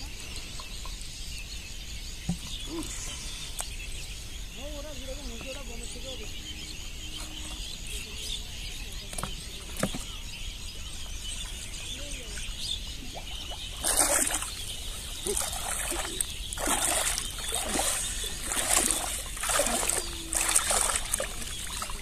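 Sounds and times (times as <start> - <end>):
wading through muddy water: 8.9 - 22.0.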